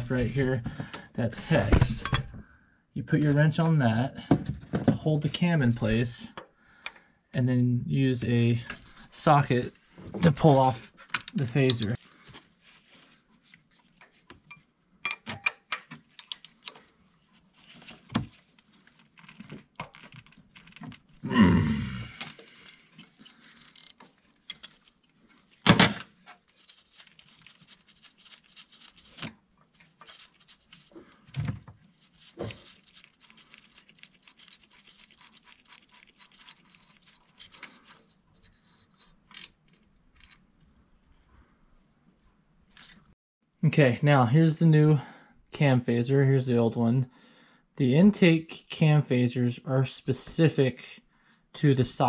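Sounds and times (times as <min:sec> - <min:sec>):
grunt of effort: 0:21.2 - 0:22.4.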